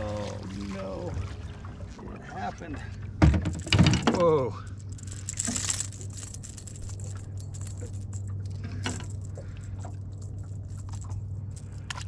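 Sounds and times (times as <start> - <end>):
metallic hooks jingling: 4.7 - 12.0.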